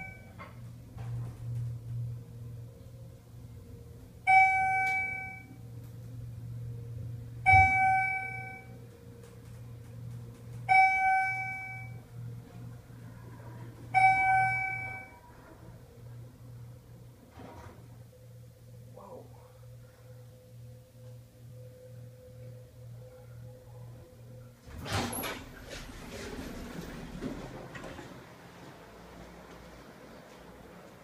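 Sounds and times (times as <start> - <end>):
elevator chime dinging: 0.0 - 0.4, 4.2 - 5.7, 7.2 - 8.8, 10.6 - 12.6, 13.8 - 15.7
low hum of pump motor: 0.0 - 31.0.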